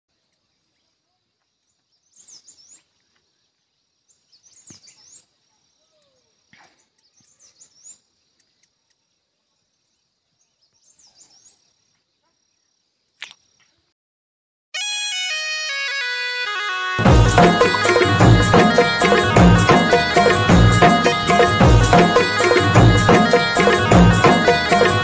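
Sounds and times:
songbird chirping: 0.1 - 13.8.

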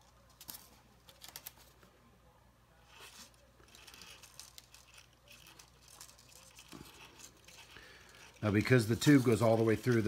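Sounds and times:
wires rustling: 2.8 - 10.0.

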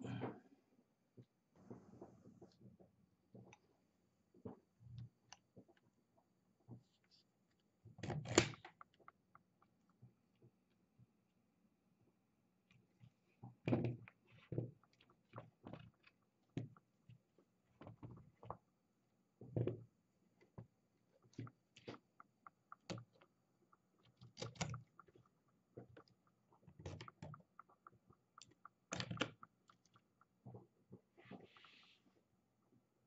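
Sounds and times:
plastic clicks and knocks: 20.5 - 30.4.

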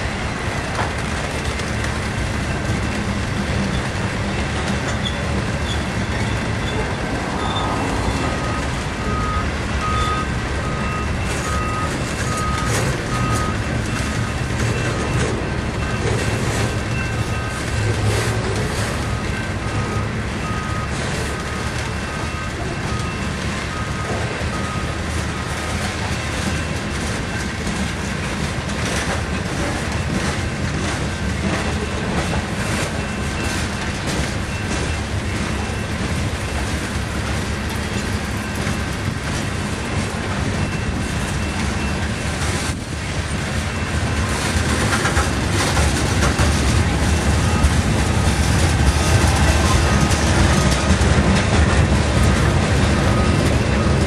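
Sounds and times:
freight train wheels rumbling: 0.0 - 54.0
train cars clanking: 0.0 - 54.0.

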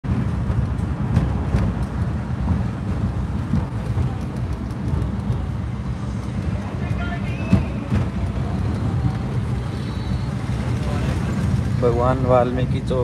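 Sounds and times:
engine and road rumble: 0.0 - 13.0.

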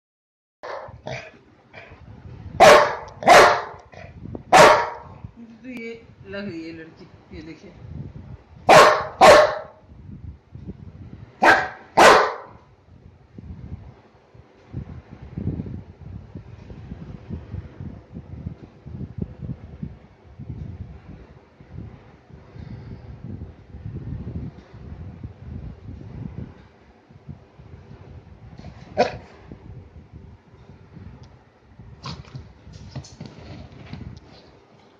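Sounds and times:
dog barking: 0.6 - 1.3, 2.6 - 3.8, 4.5 - 5.1, 8.7 - 9.8, 11.4 - 12.6, 29.0 - 29.2
dog scuffling on hard floor: 32.0 - 34.9.

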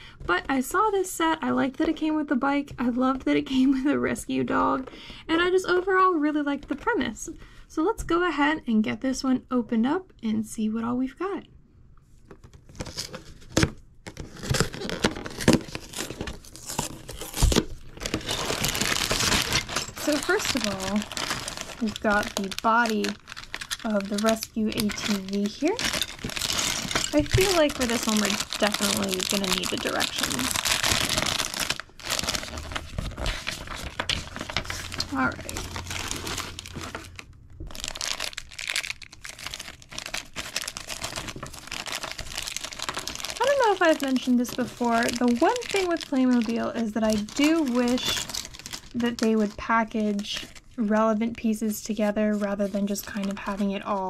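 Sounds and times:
packaging crinkling: 12.3 - 50.8
cardboard tearing: 12.7 - 49.0.

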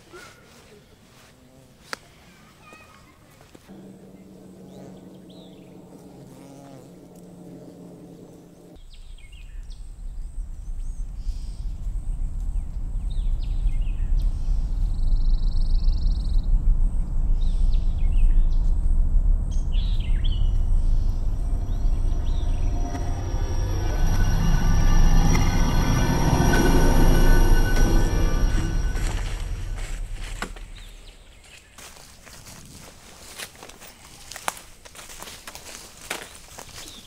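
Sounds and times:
birds chirping: 2.0 - 18.8, 19.5 - 32.2
insect-like buzz: 3.7 - 8.8, 19.5 - 31.2
deep rumbling drone: 3.7 - 32.6.

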